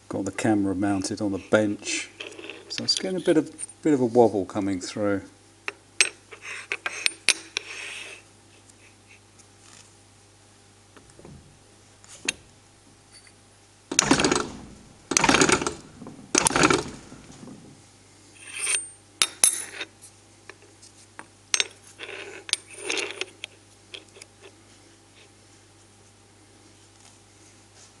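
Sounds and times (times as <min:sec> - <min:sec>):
metallic clinks and scrapes: 0:01.9 - 0:03.8, 0:18.4 - 0:19.9, 0:21.6 - 0:24.2.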